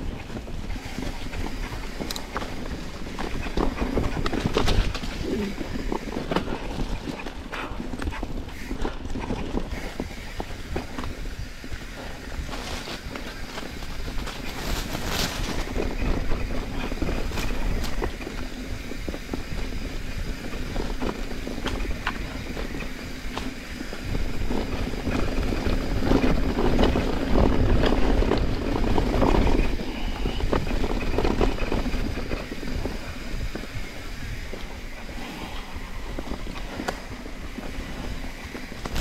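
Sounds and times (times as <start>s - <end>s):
bike clicks and knocks: 0.0s - 14.6s
bike tyres rolling over dirt: 0.0s - 39.0s
wind buffeting microphone: 0.0s - 39.0s.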